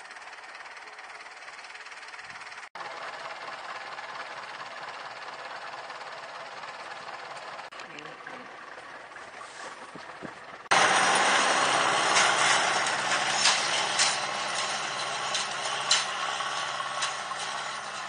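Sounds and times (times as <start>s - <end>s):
tractor diesel engine running: 0.0s - 18.0s
harrow clanking and rattling: 8.4s - 18.0s.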